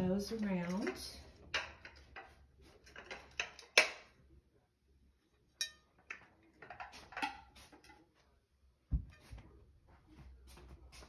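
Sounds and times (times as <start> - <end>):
glass plates clinking: 5.6 - 6.2.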